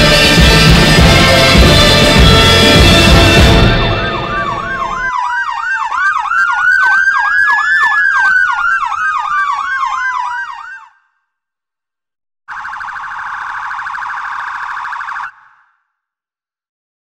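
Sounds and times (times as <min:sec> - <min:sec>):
music: 0:00.0 - 0:05.1
emergency vehicle siren: 0:00.0 - 0:11.2, 0:12.5 - 0:15.8.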